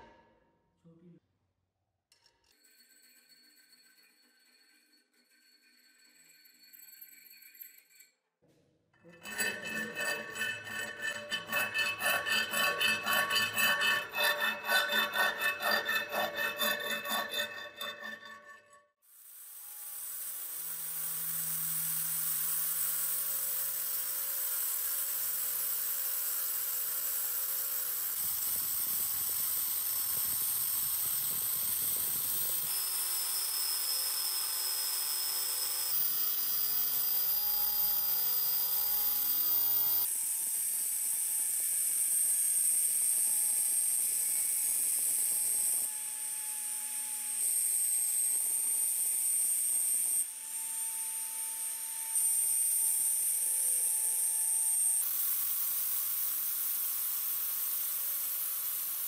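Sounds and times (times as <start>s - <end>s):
angle grinder polishing steel: 9.1s - 18.8s.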